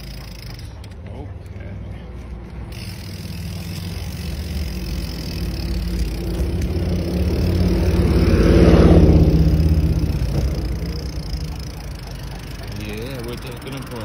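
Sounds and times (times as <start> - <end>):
car passing close by: 3.3 - 13.9
steady low rumble: 3.3 - 13.9.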